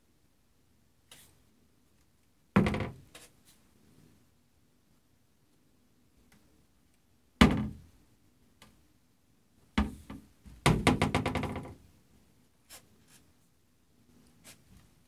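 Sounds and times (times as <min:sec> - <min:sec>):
cupboard door knocking against frame: 0:02.6 - 0:03.0, 0:07.4 - 0:07.8, 0:09.8 - 0:11.8.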